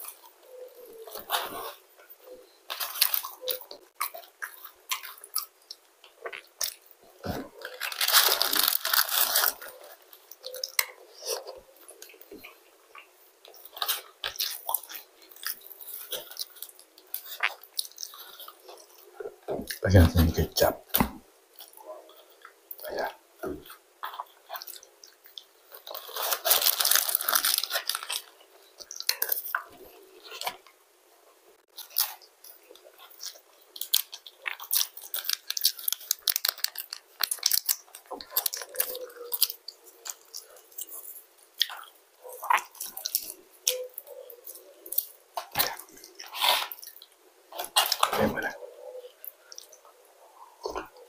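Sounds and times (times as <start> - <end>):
chewing crispy food: 0.0 - 20.7, 21.5 - 51.0.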